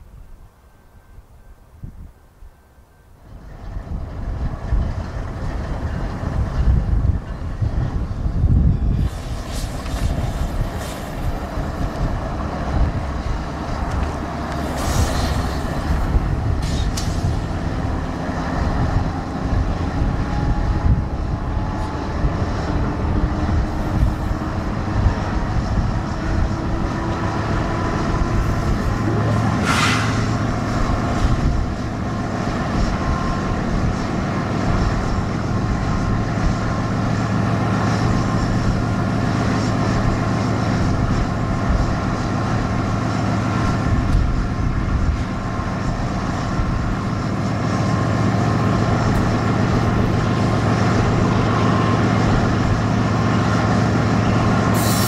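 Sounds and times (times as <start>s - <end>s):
freight train rumbling by: 0.0s - 55.0s.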